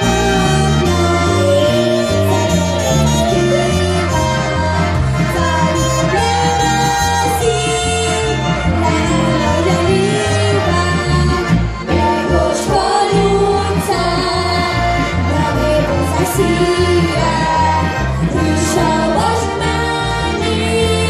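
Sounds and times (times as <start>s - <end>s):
accordion: 0.0s - 21.0s
acoustic guitar: 0.0s - 21.0s
bass guitar: 0.0s - 21.0s
several voices singing: 5.3s - 21.0s.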